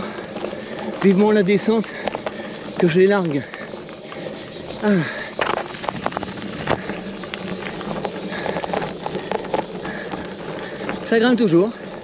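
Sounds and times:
bicycle tyres crunching on gravel: 0.0 - 12.0.

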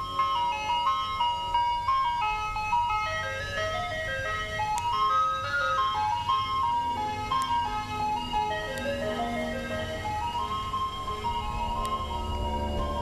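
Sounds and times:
ice cream truck chiming jingle: 0.0 - 13.0
low steady hum: 0.0 - 13.0.

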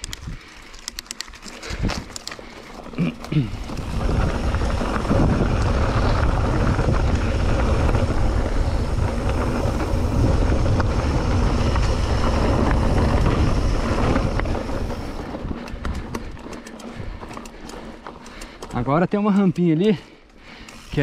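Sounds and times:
sharp clicks: 0.0 - 2.5
bike rattling over dirt trail: 0.0 - 21.0
wind buffeting microphone: 3.4 - 17.6.

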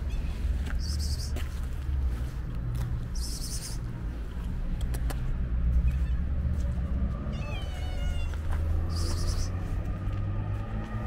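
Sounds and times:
cat meowing: 5.8 - 6.4, 7.3 - 9.5.

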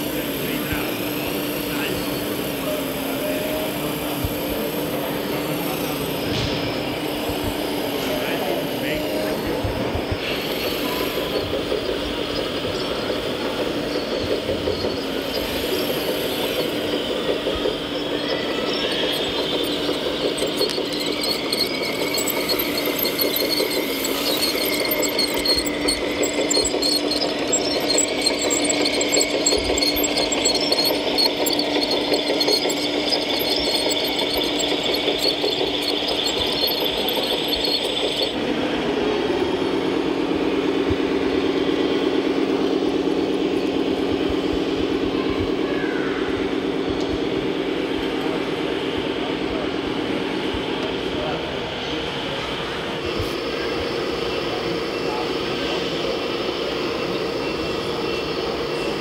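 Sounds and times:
fast-pulsing diesel engine drone: 0.0 - 45.3
toy excavator mechanical whine: 0.0 - 51.7.

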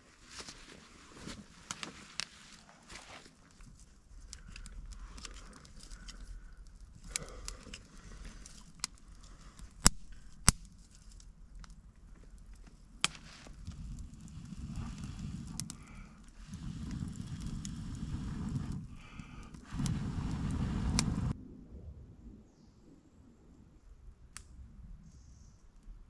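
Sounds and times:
campfire crackling and popping: 1.3 - 21.4.

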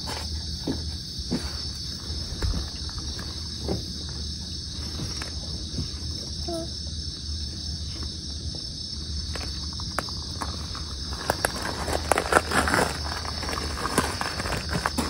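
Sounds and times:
crunching on gravel: 0.0 - 6.1, 9.0 - 15.0
night insects chirring: 0.0 - 15.0.

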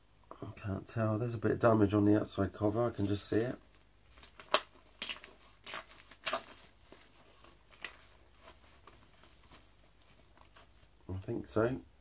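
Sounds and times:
cardboard record sleeve rustling: 2.8 - 11.2.

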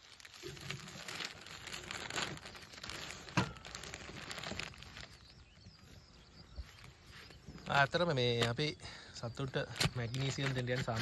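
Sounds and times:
paper sack rustling and crinkling: 0.0 - 11.0.

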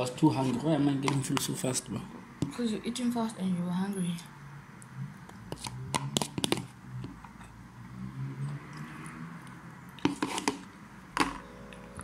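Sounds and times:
chewing and mouth sounds: 8.4 - 10.0.

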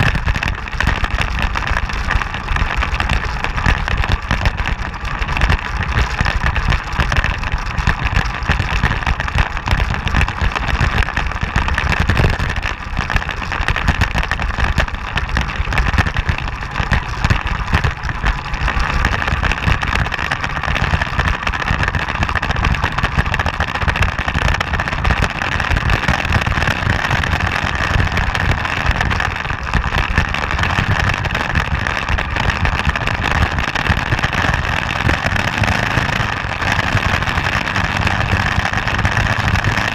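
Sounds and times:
motorcycle engine running: 0.0 - 39.9
road noise: 0.0 - 39.9
wind noise: 0.0 - 39.9.

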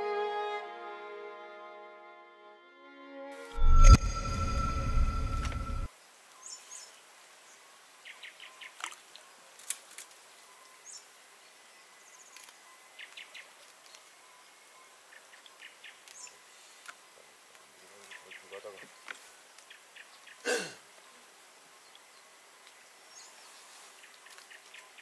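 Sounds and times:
low steady hiss: 3.8 - 25.0
bird calls and chirps: 6.4 - 8.9, 10.4 - 16.8, 17.8 - 20.5, 21.8 - 25.0.

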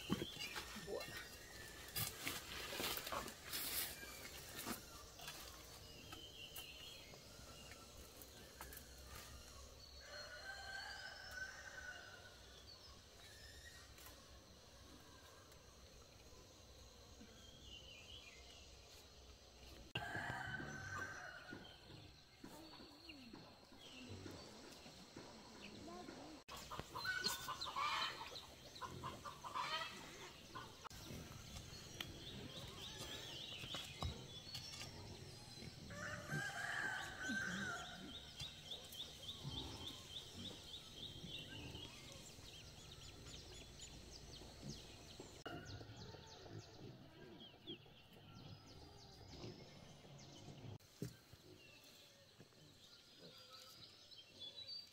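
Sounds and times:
rooster crowing: 35.9 - 38.0.

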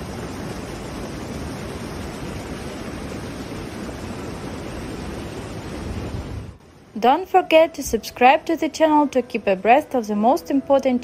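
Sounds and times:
wind rumbling on microphone: 0.0 - 6.9
floodwater rushing: 0.0 - 7.8.

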